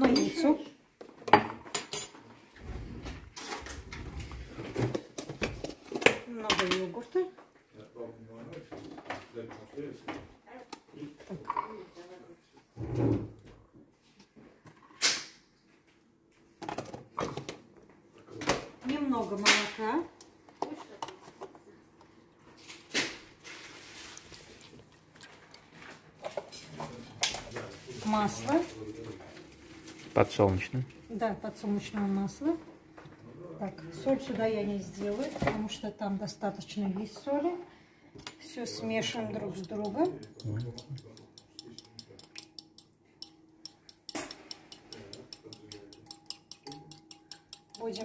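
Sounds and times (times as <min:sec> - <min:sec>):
whisk clinking on bowl: 0:39.1 - 0:48.0.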